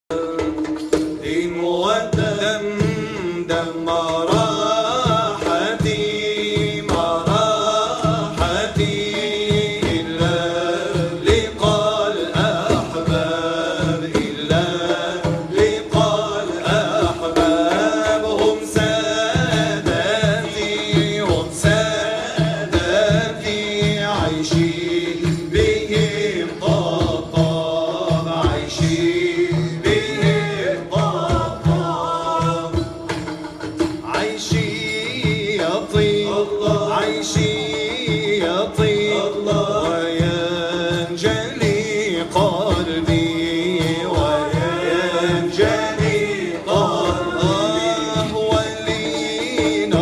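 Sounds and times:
men chanting over loudspeakers: 0:01.2 - 0:33.2, 0:33.9 - 0:50.0
steady beat: 0:02.2 - 0:50.0.

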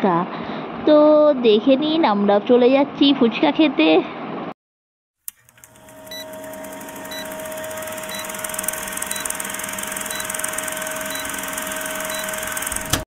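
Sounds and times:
film projector clatter: 0:05.3 - 0:13.0
short high beeps: 0:06.1 - 0:06.4, 0:07.0 - 0:12.6.

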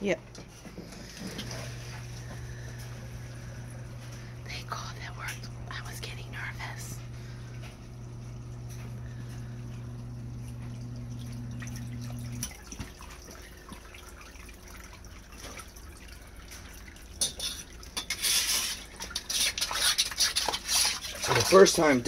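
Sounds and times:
sump pump humming: 0:00.0 - 0:22.0
water dripping and trickling: 0:00.9 - 0:05.7, 0:07.0 - 0:22.0.

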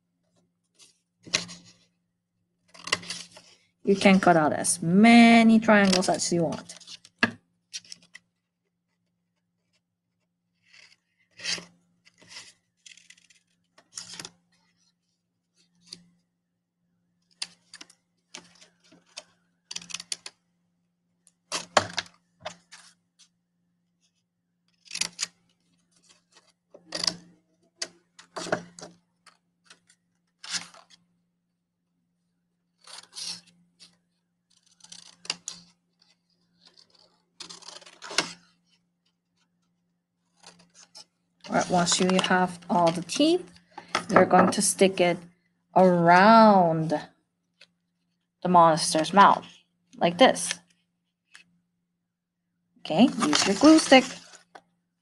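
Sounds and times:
scissors snipping paper: 0:34.5 - 0:38.4.

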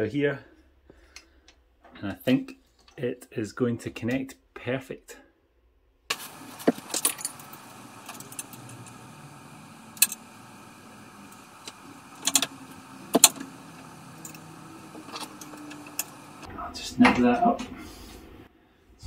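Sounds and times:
metallic clicks and rattles: 0:06.1 - 0:16.5.

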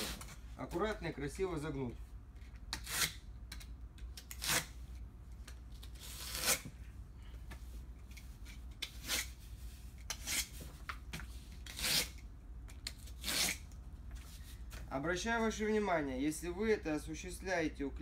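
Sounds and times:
knife cutting cardboard: 0:06.0 - 0:06.7, 0:11.6 - 0:12.2, 0:13.0 - 0:13.6.

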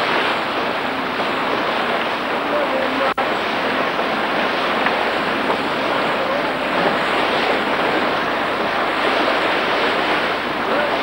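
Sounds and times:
wind and sea rushing: 0:00.0 - 0:11.0
wind buffeting microphone: 0:00.0 - 0:11.0.

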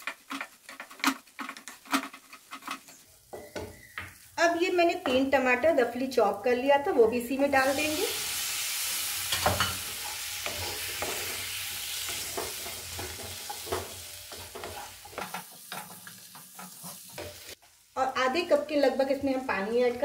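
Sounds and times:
wooden spatula scraping pan: 0:00.0 - 0:04.2, 0:09.3 - 0:17.6
tomatoes sizzling in hot oil: 0:00.0 - 0:20.0.

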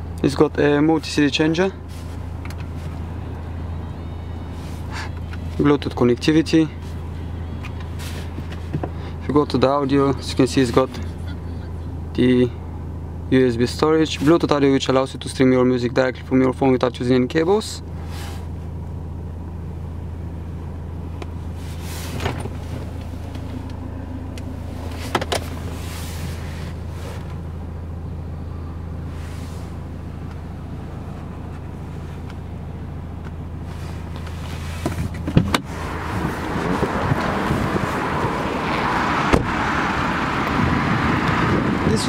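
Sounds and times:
diesel engine idling: 0:00.0 - 0:42.0
car door clunking: 0:22.1 - 0:27.4, 0:34.1 - 0:39.7.

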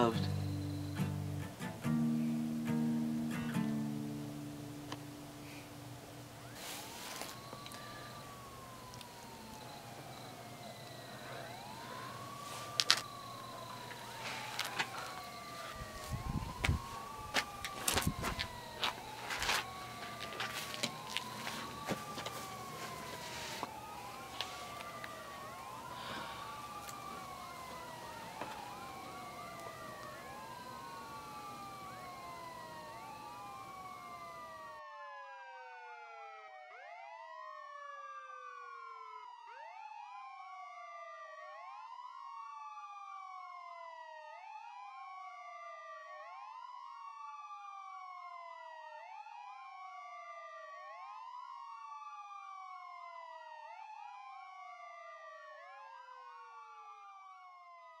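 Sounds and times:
background hiss: 0:00.0 - 0:34.7
sirens wailing: 0:00.0 - 0:58.0.

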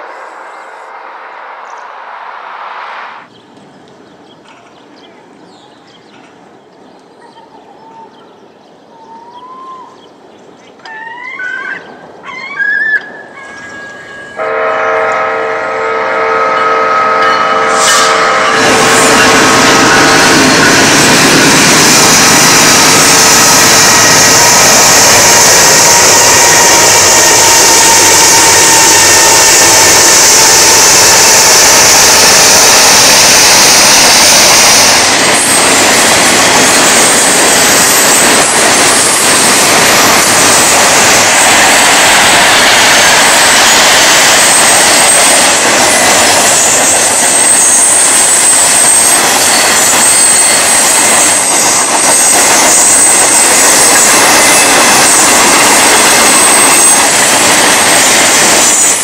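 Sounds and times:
train wheels rushing on rail: 0:13.0 - 0:59.0
high wheel squeal: 0:44.4 - 0:57.2.

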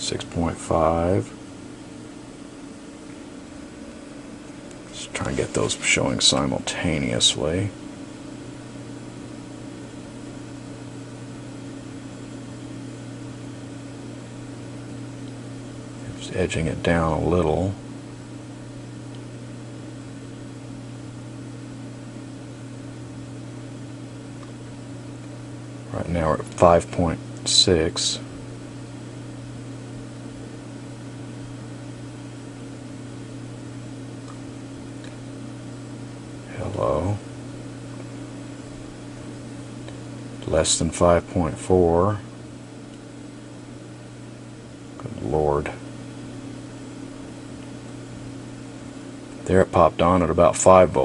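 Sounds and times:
constant hiss: 0:00.0 - 0:51.0
electrical hum: 0:00.0 - 0:51.0.

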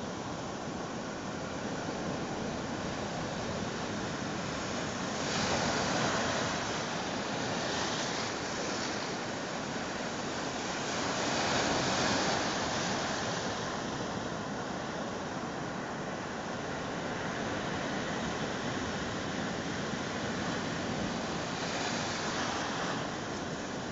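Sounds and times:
waves breaking: 0:00.2 - 0:23.9.

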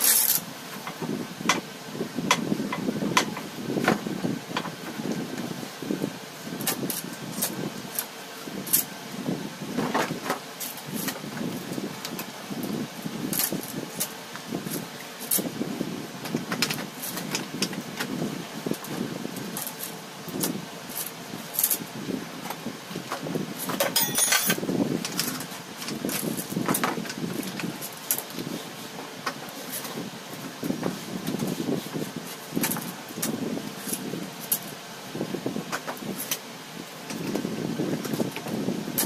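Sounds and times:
metal tools clinking: 0:23.9 - 0:24.6.

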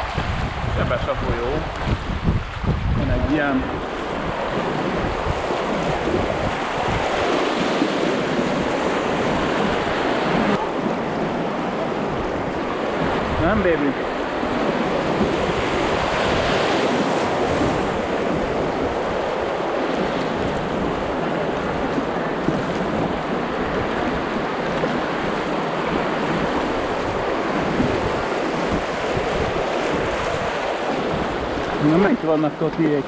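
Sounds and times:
river water rushing over riffles: 0:00.0 - 0:33.0
wind buffeting microphone: 0:00.0 - 0:33.0.

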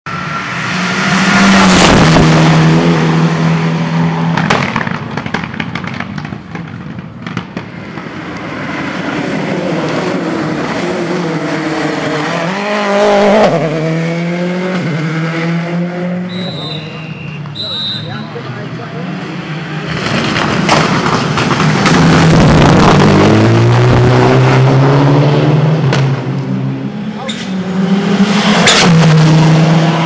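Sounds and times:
rally cars revving past: 0:00.1 - 0:05.8, 0:07.3 - 0:17.5, 0:18.6 - 0:30.0.

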